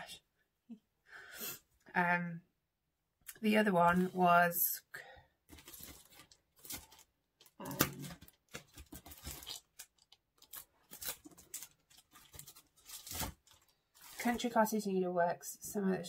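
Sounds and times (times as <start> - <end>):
papers and plastic sleeves rustling: 3.4 - 14.9.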